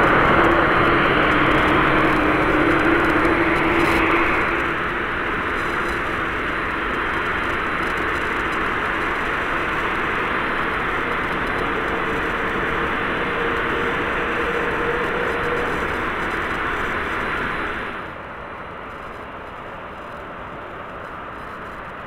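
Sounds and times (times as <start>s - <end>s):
jet engine noise: 0.0s - 22.0s.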